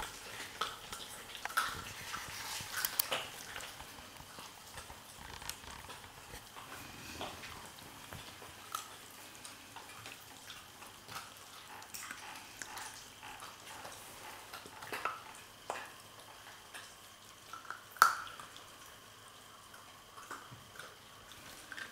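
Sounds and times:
puppies chewing and crunching: 0.0s - 21.9s
small bone cracks: 2.6s - 6.4s.

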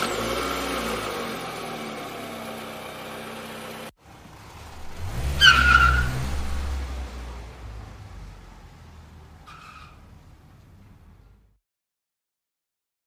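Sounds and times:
car engine revving: 0.0s - 11.5s
car engine idling: 0.0s - 11.6s
tire squeal: 4.6s - 8.5s, 9.3s - 10.4s.

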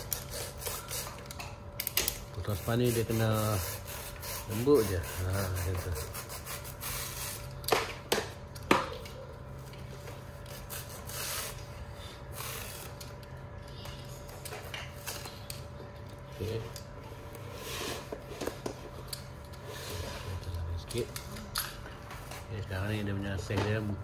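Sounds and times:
knife scraping through foam: 2.7s - 7.4s.

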